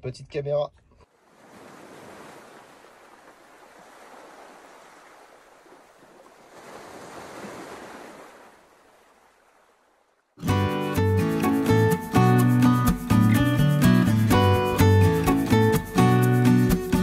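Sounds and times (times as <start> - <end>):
sea water washing: 1.2 - 10.2
loud music: 10.4 - 17.0.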